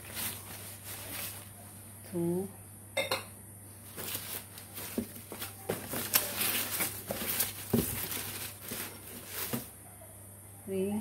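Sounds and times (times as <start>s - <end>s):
packing wrap rustling: 0.0s - 1.6s, 3.8s - 9.8s.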